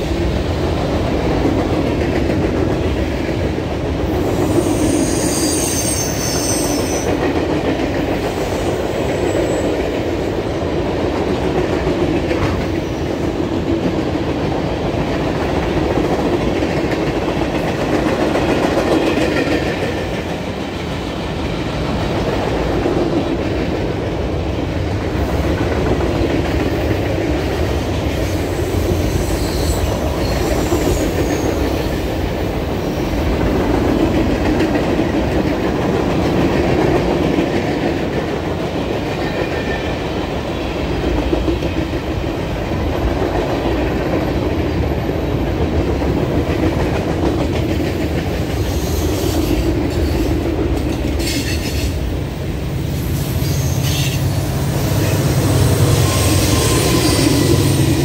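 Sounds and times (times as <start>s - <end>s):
train wheels rumbling and clacking: 0.0s - 58.0s
high wheel squeals: 4.4s - 7.1s, 28.6s - 31.6s, 53.0s - 58.0s
diesel locomotive engine drone: 6.8s - 58.0s.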